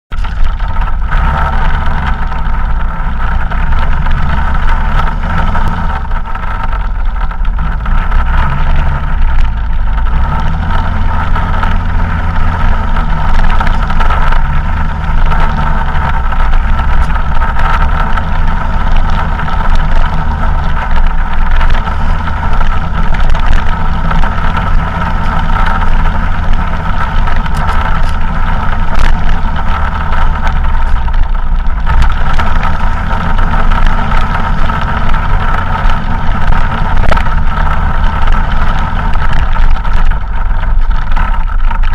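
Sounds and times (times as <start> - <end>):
vehicle motor whining: 0.1 - 41.9
wind rumble on camera: 0.1 - 41.9.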